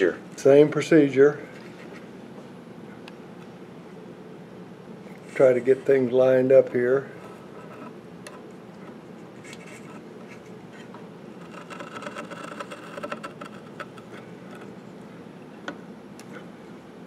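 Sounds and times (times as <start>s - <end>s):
low shop hum: 0.0s - 17.0s
blade scraping wood: 9.4s - 14.8s.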